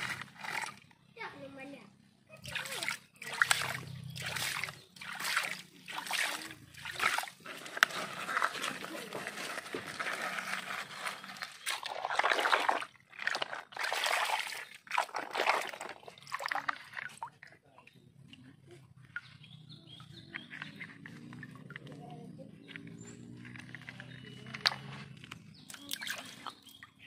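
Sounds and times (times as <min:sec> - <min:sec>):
water splashing: 0:00.0 - 0:00.9, 0:02.3 - 0:17.6, 0:22.6 - 0:27.0.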